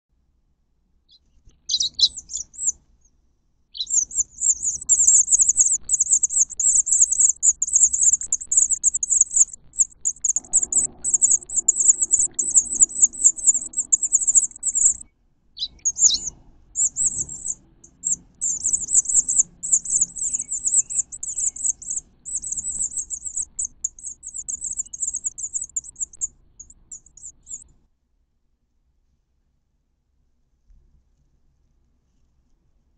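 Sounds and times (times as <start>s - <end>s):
nestlings begging calls: 1.7s - 2.7s, 3.8s - 15.0s, 15.6s - 27.6s.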